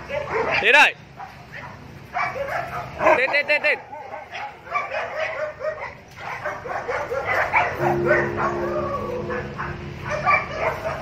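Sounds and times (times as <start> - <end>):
dogs barking yipping and whining: 0.0 - 11.0
steady held tone: 7.8 - 10.6.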